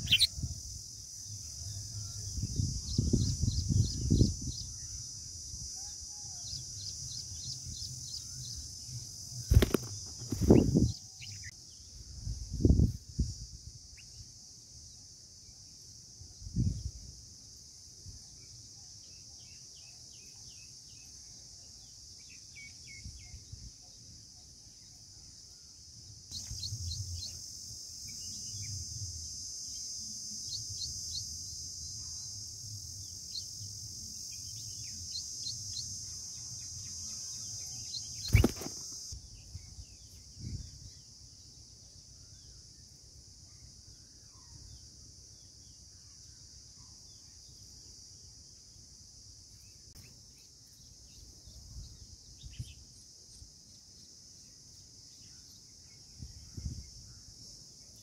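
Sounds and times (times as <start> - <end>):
high bird chirps: 0.0 - 0.4, 34.3 - 39.2
high insect drone: 0.0 - 58.0.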